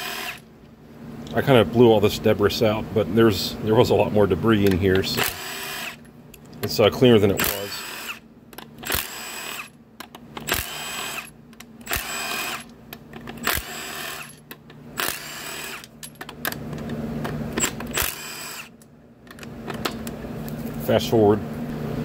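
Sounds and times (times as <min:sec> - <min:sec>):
impact wrench spinning bolts: 0:04.8 - 0:06.1, 0:07.3 - 0:09.7, 0:10.3 - 0:16.6, 0:17.5 - 0:18.8.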